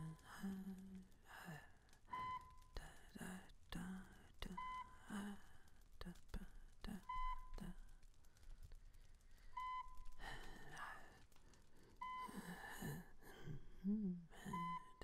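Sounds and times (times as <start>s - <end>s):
heart monitor beeping: 0.0s - 0.3s, 2.0s - 2.8s, 4.5s - 5.4s, 6.9s - 7.8s, 9.5s - 13.6s, 14.5s - 15.0s
low vocal noises: 0.0s - 8.1s, 12.0s - 15.0s
person breathing: 11.3s - 14.6s.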